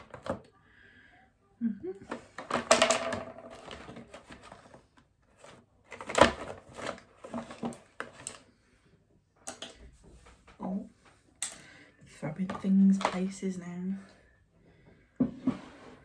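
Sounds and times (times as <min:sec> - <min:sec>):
products clicking and knocking on table: 0:02.1 - 0:04.0.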